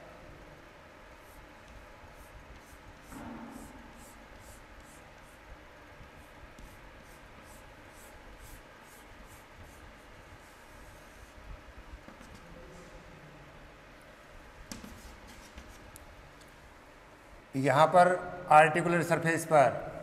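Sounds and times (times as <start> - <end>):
chalk scratching on chalkboard: 1.1 - 11.4, 12.0 - 12.5, 14.7 - 16.0.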